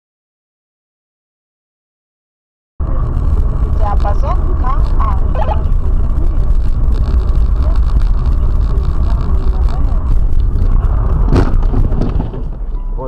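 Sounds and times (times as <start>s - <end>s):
road and engine rumble: 2.8s - 13.0s
faint radio voice: 3.7s - 6.6s.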